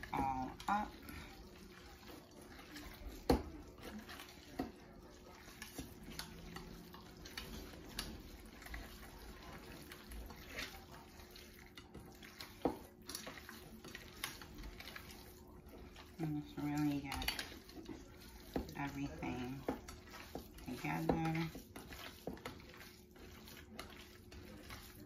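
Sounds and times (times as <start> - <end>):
hands squelching meat mixture: 0.0 - 25.0.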